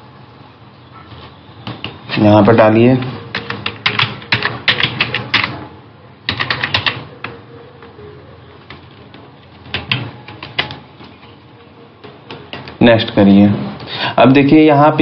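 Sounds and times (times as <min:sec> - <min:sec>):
computer keyboard typing: 0:01.6 - 0:13.2.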